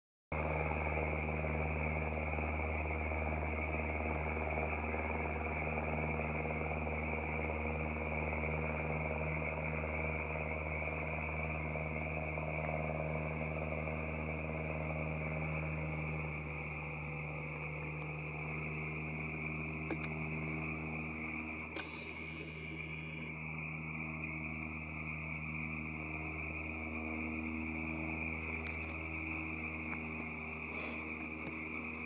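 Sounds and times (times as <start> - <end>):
frogs calling: 0.4 - 32.0
low mechanical hum: 0.4 - 32.0.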